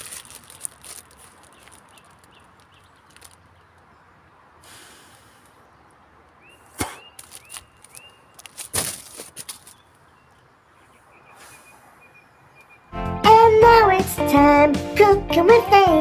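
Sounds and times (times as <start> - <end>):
paper wrapper crackling: 0.0 - 3.5, 7.2 - 9.8
bird chirping: 0.4 - 4.5, 5.4 - 8.6, 9.5 - 13.0.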